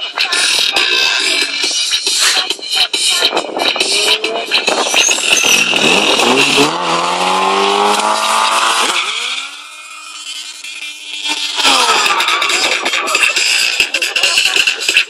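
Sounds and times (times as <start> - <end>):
motorcycle engine revving: 3.4 - 12.5.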